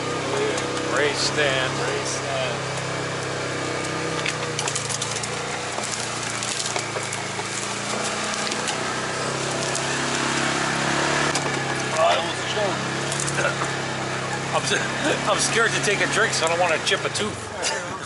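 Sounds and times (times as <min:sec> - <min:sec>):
vehicle engine hum: 0:00.0 - 0:18.0
sharp cracks and clicks: 0:02.7 - 0:08.9.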